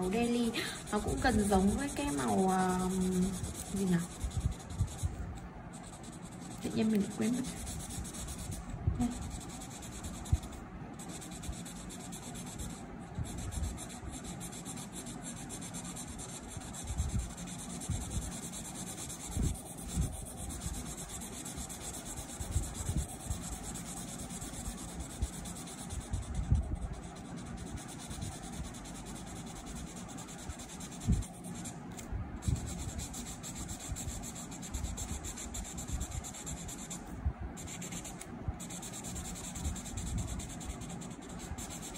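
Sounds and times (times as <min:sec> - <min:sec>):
marker scratching on paper: 0:00.0 - 0:41.9.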